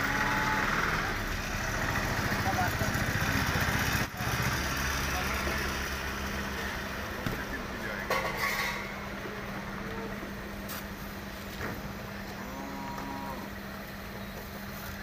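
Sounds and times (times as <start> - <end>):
cow mooing: 0.0 - 1.1, 12.4 - 13.6
street traffic engine hum: 0.0 - 15.0.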